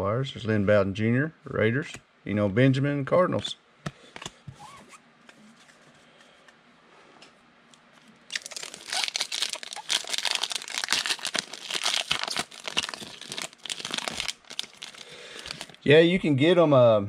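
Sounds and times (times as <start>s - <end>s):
foil wrapper tearing and crinkling: 8.3s - 15.8s.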